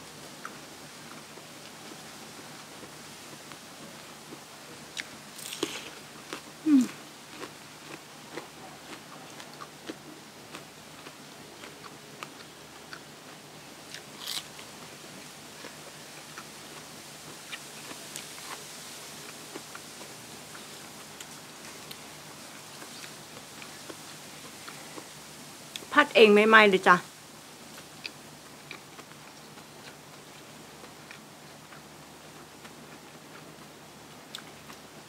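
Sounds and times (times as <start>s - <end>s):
wet chewing: 4.9s - 13.1s, 13.9s - 14.6s
crunchy bites: 5.0s - 13.0s, 13.9s - 14.6s.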